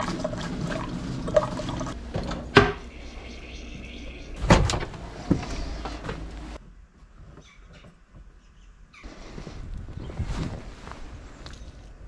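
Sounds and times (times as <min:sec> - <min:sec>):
water pouring into metal tumbler: 0:00.0 - 0:02.0.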